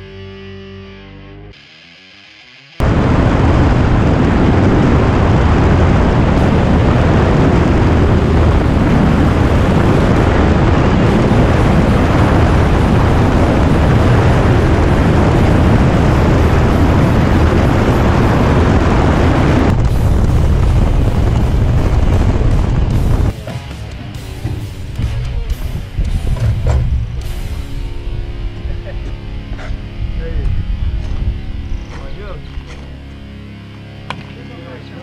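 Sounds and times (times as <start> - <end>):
wind rushing: 2.8 - 23.4
plane engine noise: 2.8 - 35.0.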